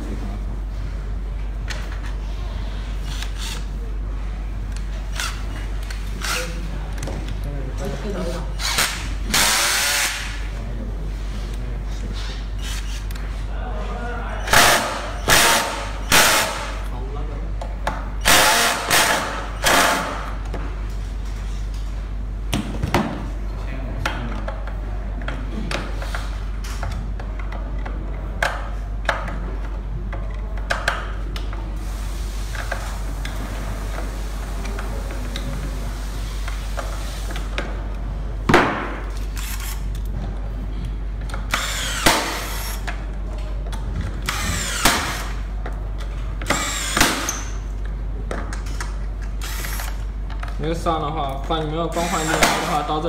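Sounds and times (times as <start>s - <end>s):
electric screwdriver whirring: 8.6s - 10.3s, 41.5s - 42.8s, 44.2s - 45.4s, 46.5s - 47.5s, 49.4s - 50.0s.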